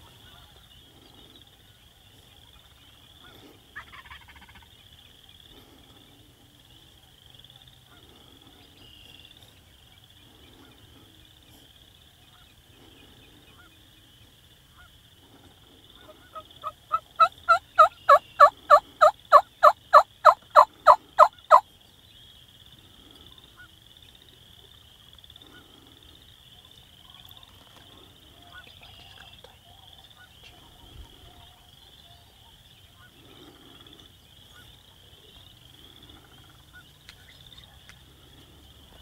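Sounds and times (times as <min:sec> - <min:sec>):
turkey yelping: 0:16.1 - 0:21.6.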